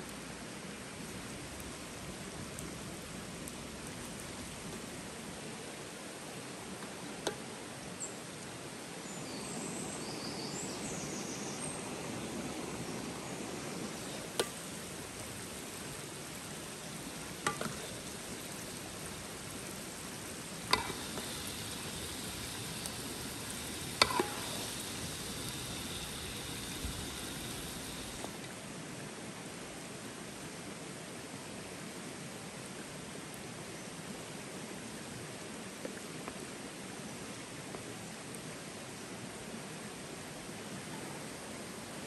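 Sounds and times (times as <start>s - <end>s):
sauce sizzling in a pan: 14.0s - 28.4s.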